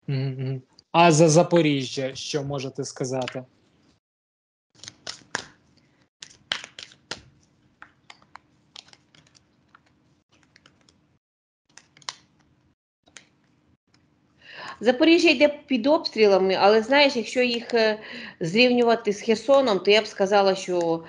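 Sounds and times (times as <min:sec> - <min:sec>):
cards being shuffled: 0:04.8 - 0:11.1, 0:11.7 - 0:13.5.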